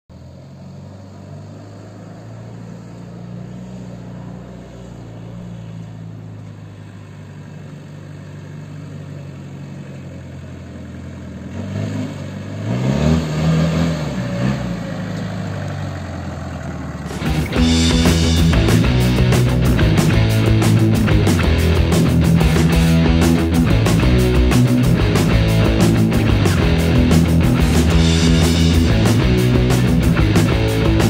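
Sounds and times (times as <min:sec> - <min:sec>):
pickup truck engine revving: 0:10.3 - 0:31.0.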